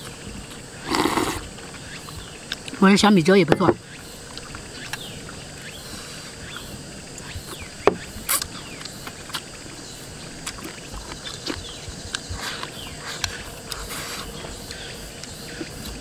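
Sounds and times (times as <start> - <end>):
chewing and sucking food: 0.0 - 2.8, 8.2 - 16.0
insects chirring: 0.0 - 16.0.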